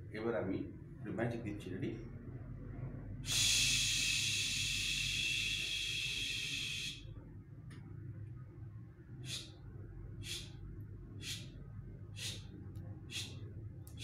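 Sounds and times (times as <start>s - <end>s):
person hissing through mouth: 3.2s - 7.1s, 9.2s - 9.6s, 10.2s - 10.6s, 11.2s - 11.5s, 12.2s - 12.5s, 13.1s - 13.4s.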